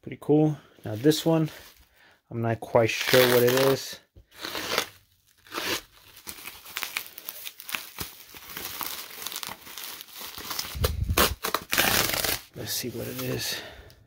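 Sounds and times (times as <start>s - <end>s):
plastic film tearing: 2.9s - 13.4s
bubble wrap crinkling: 2.9s - 13.5s.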